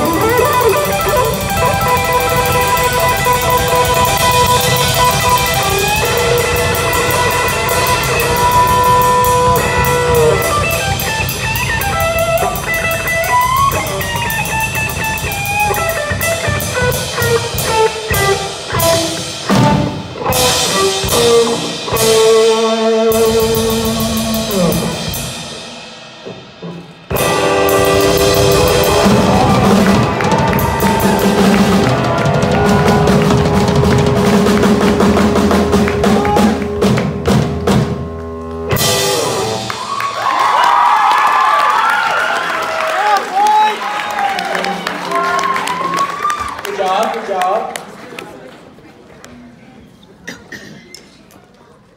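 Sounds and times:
electric guitar through amplifier: 0:00.0 - 0:25.6, 0:26.3 - 0:39.9
rock drum kit: 0:00.0 - 0:42.1.

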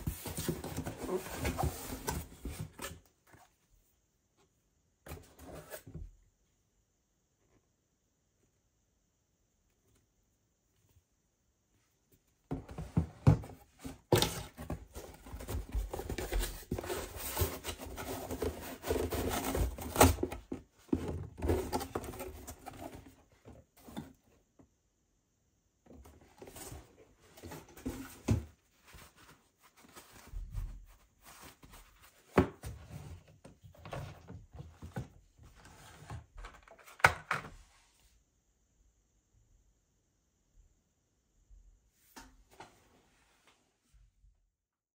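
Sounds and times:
bottles and box rustling: 0:00.0 - 0:03.0, 0:12.5 - 0:24.3.

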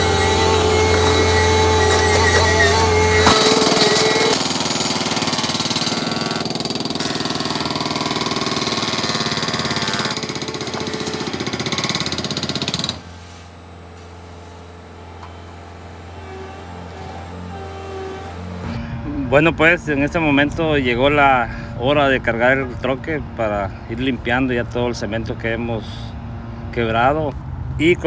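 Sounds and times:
hydraulic breaker pounding concrete: 0:00.0 - 0:18.8
steady rumble: 0:07.4 - 0:28.0.

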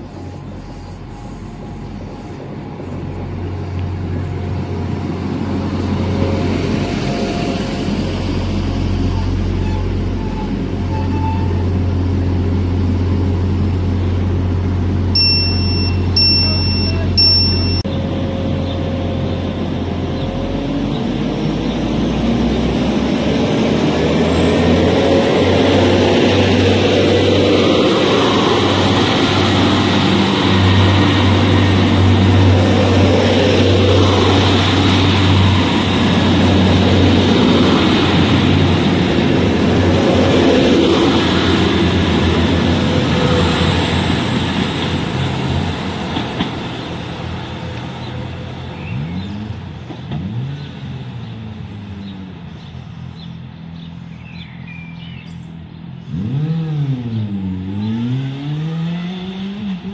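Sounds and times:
diesel train pulling away: 0:00.0 - 0:59.9
electronic beeps: 0:15.2 - 0:17.9.

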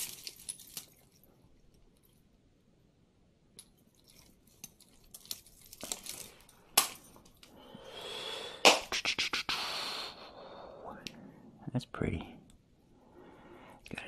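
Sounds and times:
jewelry clinking: 0:00.0 - 0:02.3, 0:03.5 - 0:07.6.

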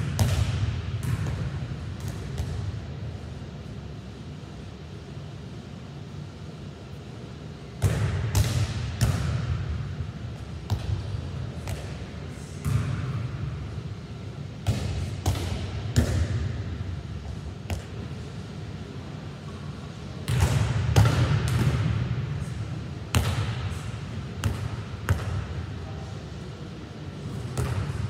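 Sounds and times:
volleyball slapping echoing: 0:00.0 - 0:02.8, 0:07.8 - 0:13.5, 0:14.6 - 0:16.8, 0:20.2 - 0:22.5, 0:23.1 - 0:25.6, 0:27.5 - 0:28.0.

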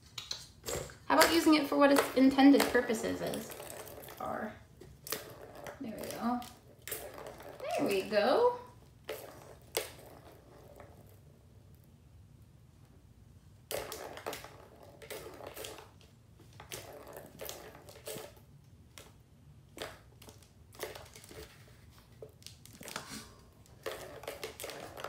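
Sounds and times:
plastic toy rattling and clattering: 0:00.2 - 0:08.3, 0:22.5 - 0:25.0.

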